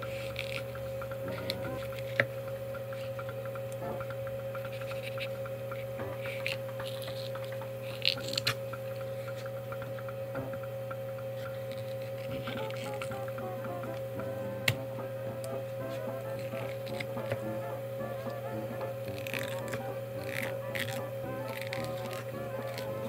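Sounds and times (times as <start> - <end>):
low electrical hum: 0.0 - 23.0
knife ticking on fish bones: 19.1 - 23.0.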